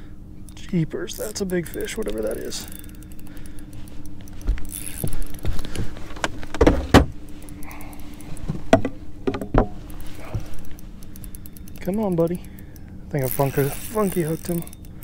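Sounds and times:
steady low hum: 0.0s - 15.0s
knocks and thumps on boat deck: 4.5s - 7.2s, 8.5s - 10.6s.

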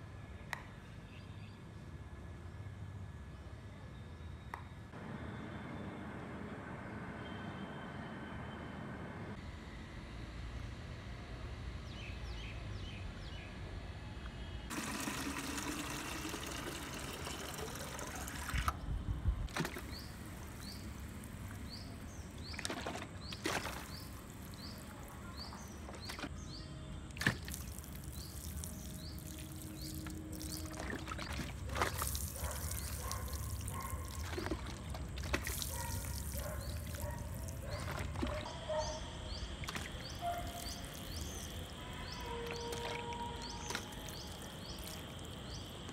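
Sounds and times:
water pattering onto leaves and soil: 19.5s - 26.4s, 27.1s - 38.5s, 39.6s - 45.9s.

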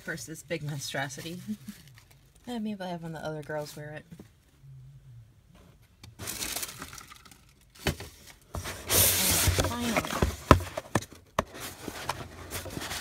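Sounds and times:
tissue paper rustling: 0.9s - 2.2s, 8.6s - 10.2s.

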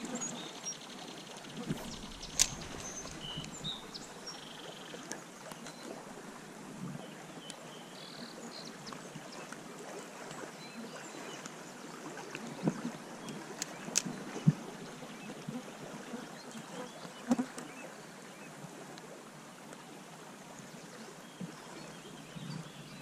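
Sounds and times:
stream water rippling: 0.0s - 23.0s
faint bird chirps: 0.1s - 5.0s.

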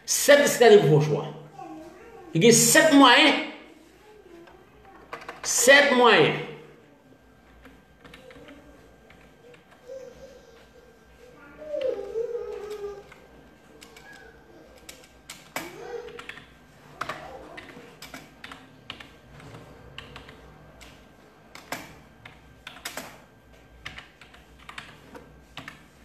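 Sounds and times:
typing on a keyboard: 5.1s - 5.4s, 7.5s - 9.8s, 12.5s - 25.9s.

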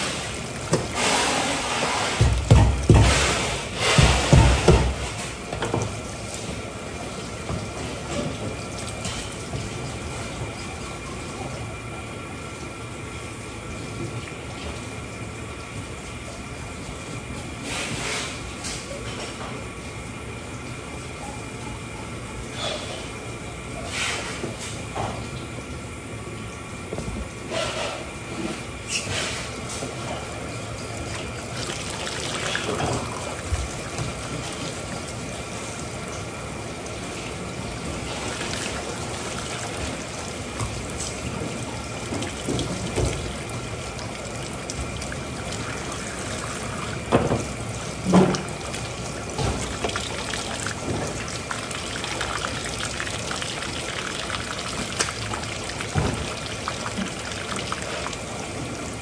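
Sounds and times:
water trickling: 30.2s - 59.0s.

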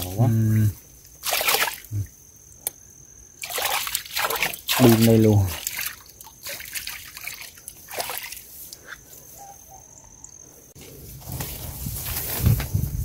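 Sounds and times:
feet wading through water: 1.2s - 1.9s, 3.4s - 8.6s.

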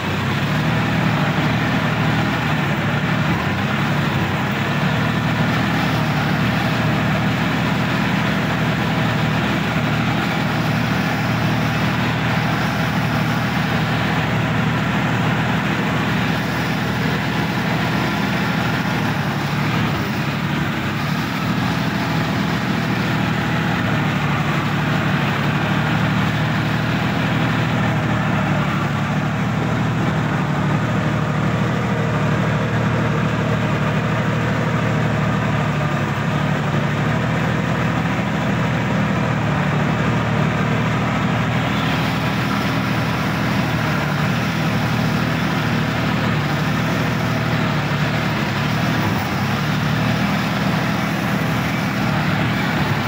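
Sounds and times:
tractor diesel engine running: 0.0s - 53.0s.

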